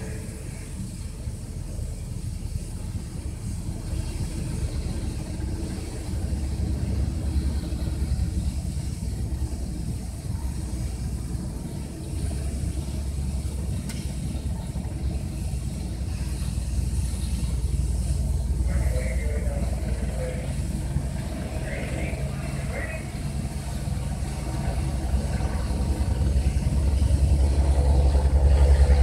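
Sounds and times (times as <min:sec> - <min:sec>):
helicopter rotors and engines rumbling: 0:00.0 - 0:29.0.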